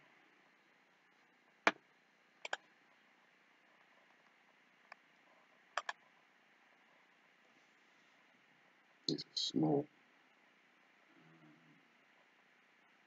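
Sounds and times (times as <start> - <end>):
room hiss: 0.0 - 13.0
computer mouse clicks: 2.4 - 2.7, 5.7 - 6.0.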